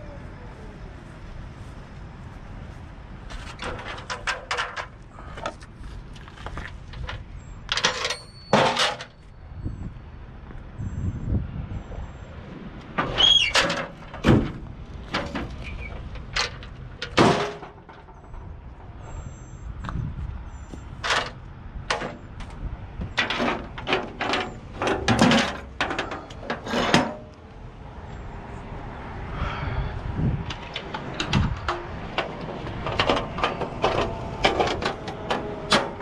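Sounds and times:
metal clanks and scrapes: 3.3 - 5.6, 6.2 - 9.3, 13.0 - 19.2, 21.0 - 27.4, 30.4 - 36.0
sharp ringing metal clangs: 7.8 - 9.3.

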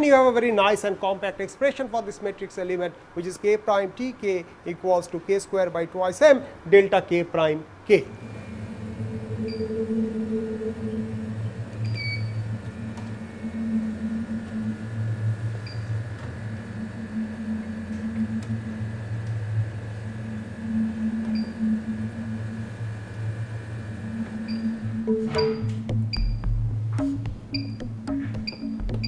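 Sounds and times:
low machine hum: 7.9 - 29.0
short high beeps: 24.5 - 26.4.

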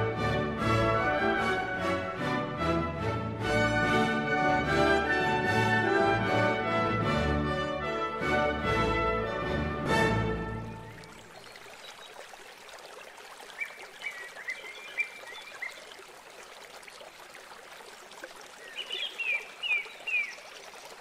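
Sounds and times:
stream running: 9.9 - 21.0
bird chirping: 13.6 - 15.9, 18.6 - 20.4.

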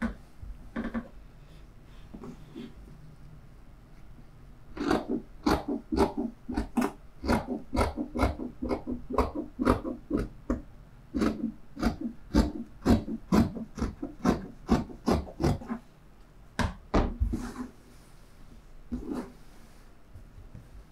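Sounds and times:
scissors snipping fabric: 4.8 - 10.3.

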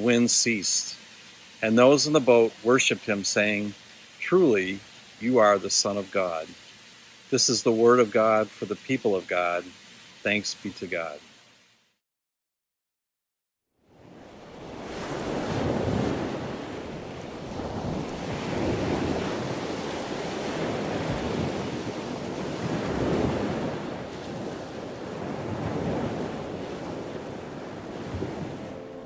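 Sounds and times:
ocean waves breaking: 13.9 - 29.0.

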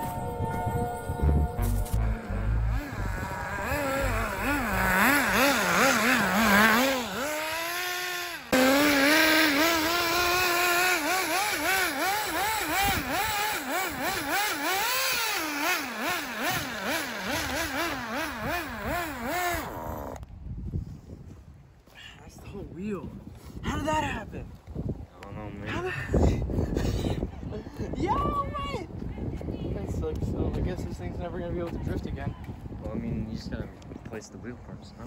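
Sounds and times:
small engine revving: 1.6 - 20.2.

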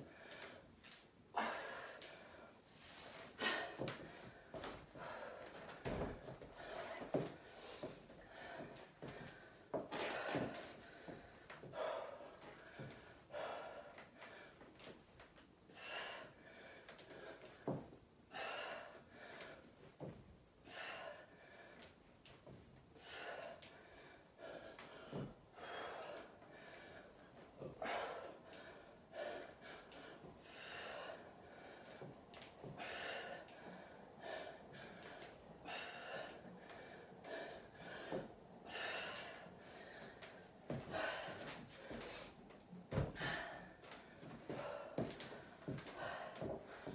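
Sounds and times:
woman breathing hard: 0.0 - 46.9.

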